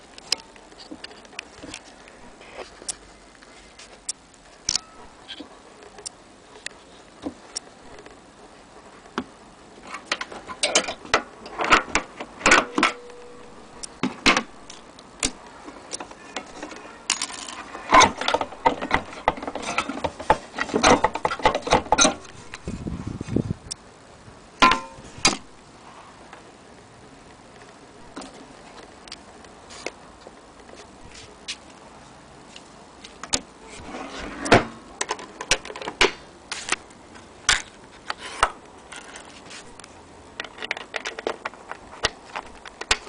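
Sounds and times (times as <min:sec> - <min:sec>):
metal gramophone parts clinking: 0:09.9 - 0:22.6, 0:24.6 - 0:25.4.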